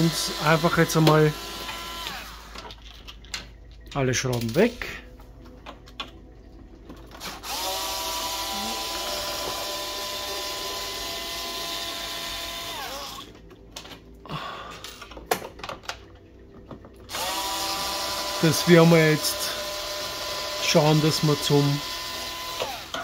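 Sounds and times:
cordless screwdriver motor whine: 0.0 - 2.7, 7.3 - 13.3, 17.1 - 23.0.

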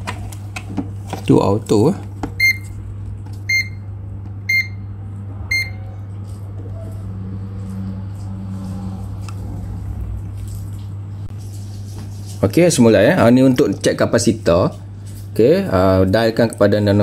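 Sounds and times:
low electrical hum: 0.0 - 17.0
clamp meter short high beeps: 4.5 - 4.8, 5.5 - 5.8.

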